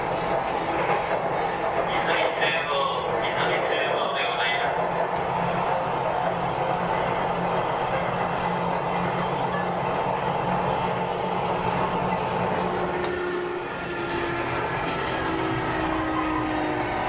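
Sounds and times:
electric train running: 0.0s - 17.0s
train motor whining tones: 12.1s - 17.0s.

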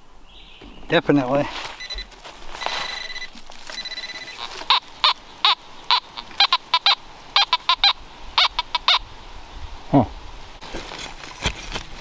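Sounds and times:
bird calling: 1.8s - 9.2s.

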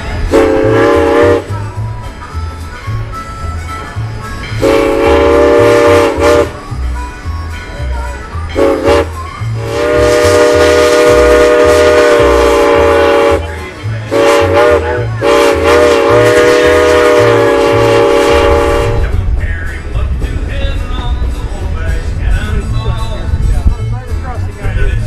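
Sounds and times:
faint country music: 0.0s - 25.0s
steam locomotive chime whistle: 0.2s - 19.2s.

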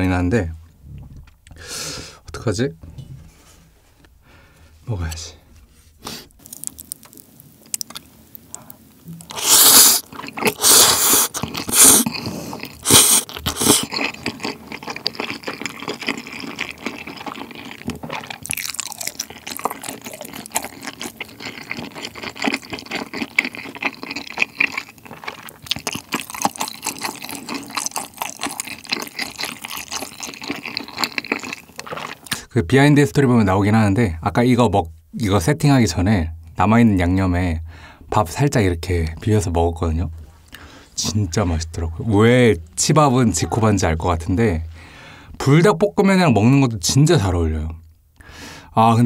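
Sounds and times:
wet chewing: 6.2s - 32.4s
slurping noodles: 9.3s - 32.4s.

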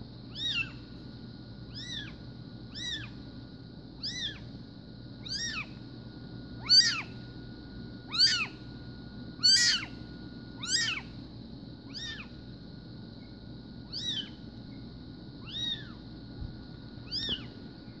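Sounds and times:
kitten mewing: 0.3s - 0.8s, 1.7s - 3.2s, 4.0s - 4.4s, 5.2s - 5.8s, 6.6s - 7.1s, 8.1s - 8.6s, 9.4s - 10.0s, 10.6s - 11.1s, 11.9s - 12.3s, 13.9s - 14.4s, 15.4s - 16.0s, 17.0s - 17.5s.

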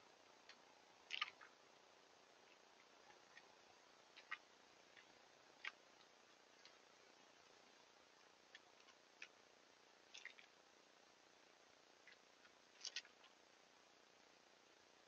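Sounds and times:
low hiss: 0.0s - 15.0s
squirrel scrabbling clicks: 0.4s - 1.5s, 2.8s - 6.8s.

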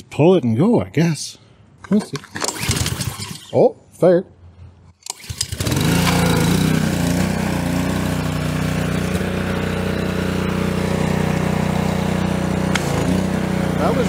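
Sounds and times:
pressure washer engine running: 5.1s - 14.0s.

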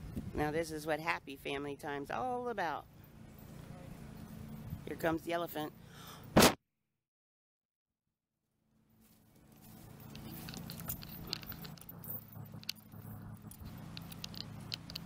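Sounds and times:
steady low hum: 9.1s - 15.0s
bridle bit jingling: 9.3s - 15.0s.

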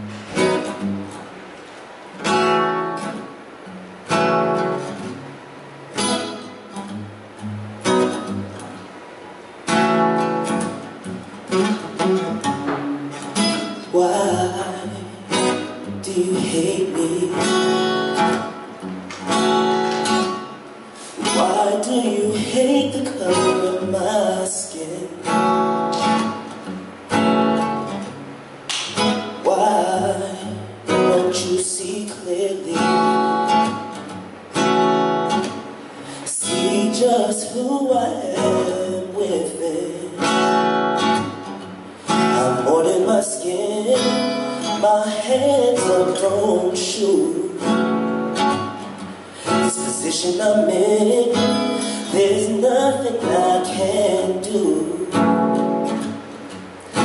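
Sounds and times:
acoustic guitar strumming: 0.0s - 57.0s
person singing: 13.8s - 15.4s, 16.0s - 17.8s, 21.2s - 25.3s, 29.4s - 33.2s, 36.2s - 40.3s, 42.3s - 47.6s, 49.6s - 55.2s.

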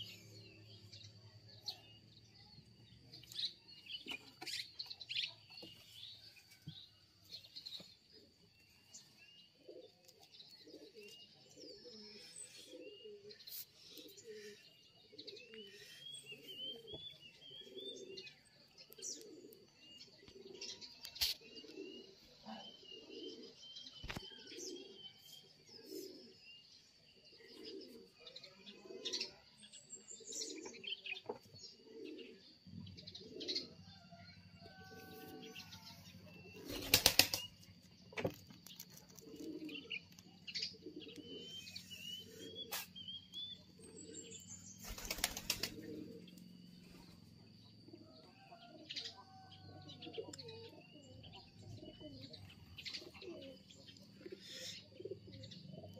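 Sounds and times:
small birds chirping: 0.0s - 55.9s
dove cooing: 9.4s - 26.4s, 27.0s - 37.6s, 38.7s - 42.9s, 43.5s - 55.9s.

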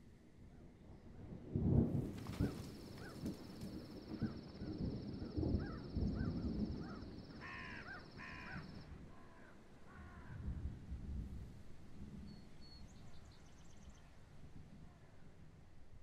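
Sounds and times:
crows cawing: 5.6s - 10.4s.

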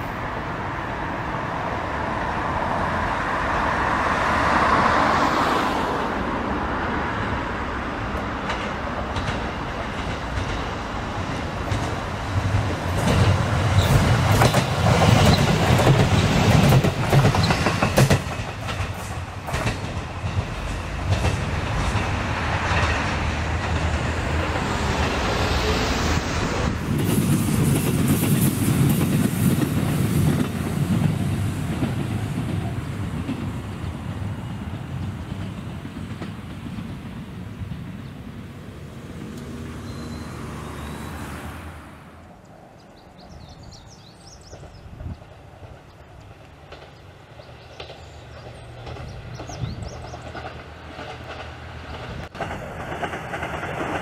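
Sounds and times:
diesel railcar engine: 0.0s - 54.0s
wheels clattering over rail joints: 8.1s - 25.4s, 44.4s - 54.0s.

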